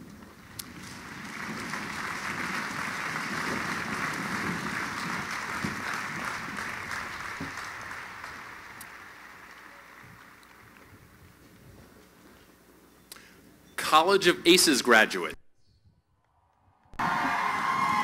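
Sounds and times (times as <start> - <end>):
crowd applauding: 0.4 - 11.1, 17.0 - 18.0.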